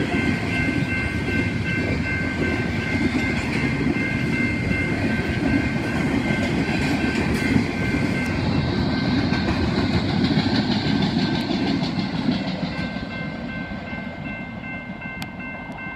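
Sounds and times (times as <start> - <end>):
high ringing tone: 0.0 - 9.4
freight train rolling on rails: 0.0 - 15.9.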